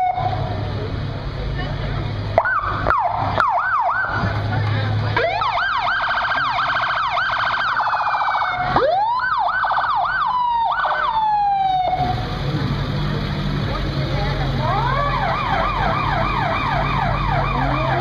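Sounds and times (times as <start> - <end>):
rescue truck siren: 0.0 - 0.6, 2.3 - 4.5, 5.1 - 12.3, 14.4 - 18.0.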